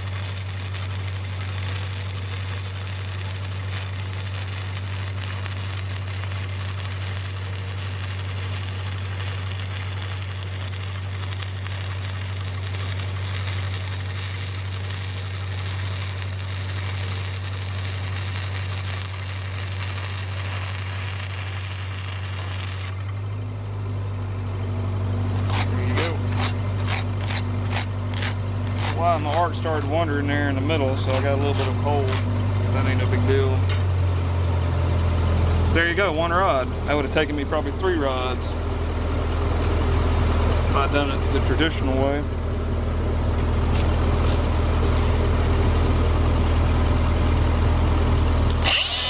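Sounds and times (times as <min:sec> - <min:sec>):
welding arc crackling and hissing: 0:00.0 - 0:23.0, 0:25.4 - 0:33.6, 0:43.4 - 0:46.6, 0:48.0 - 0:49.0
steady low hum: 0:00.0 - 0:49.0.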